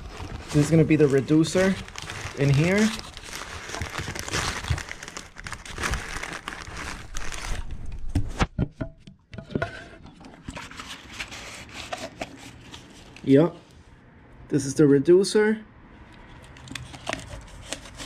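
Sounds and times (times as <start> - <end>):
cardboard rustling: 0.0 - 8.5, 10.4 - 13.3
plastic wrap crinkling: 0.0 - 8.5.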